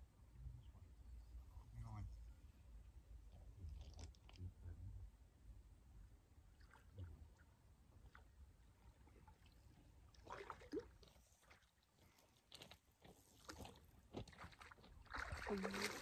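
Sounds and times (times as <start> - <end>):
fish splashing at water surface: 10.2 - 11.6, 14.3 - 16.0.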